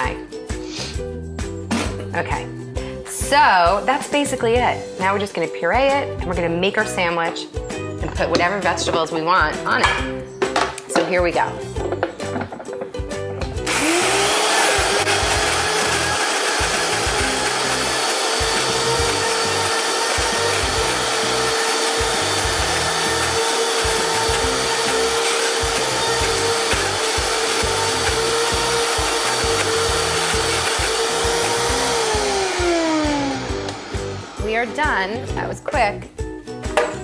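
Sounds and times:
blender motor running: 13.6 - 34.9.

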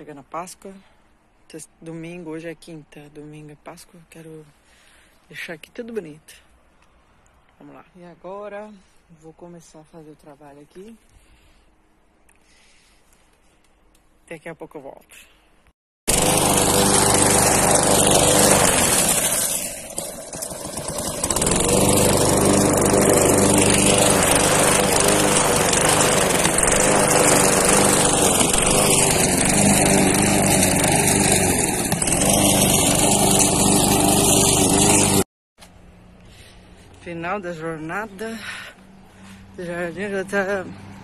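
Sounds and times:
lawn mower running: 16.1 - 38.6.

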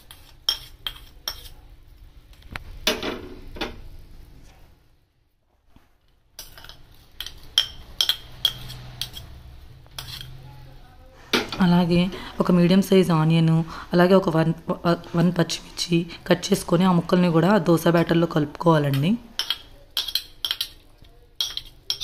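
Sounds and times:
spoon clinking on ceramic plates: 6.4 - 9.3, 18.9 - 22.0.

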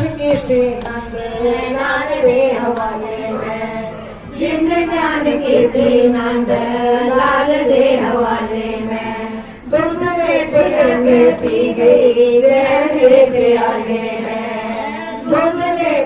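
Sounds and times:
women singing in chorus: 0.0 - 16.0.

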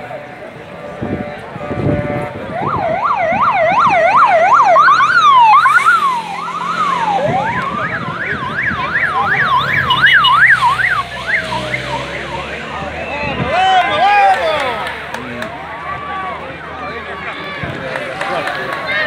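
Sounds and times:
siren slow wail: 1.4 - 14.7
siren yelp: 2.2 - 14.7.

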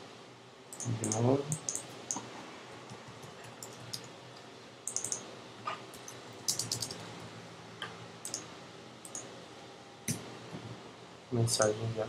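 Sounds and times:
keyboard key clicks: 4.9 - 5.2, 6.0 - 7.0.

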